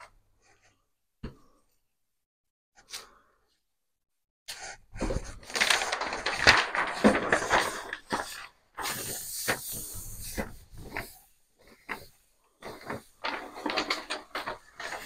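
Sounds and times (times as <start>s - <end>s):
paper rustling: 5.0s - 15.0s.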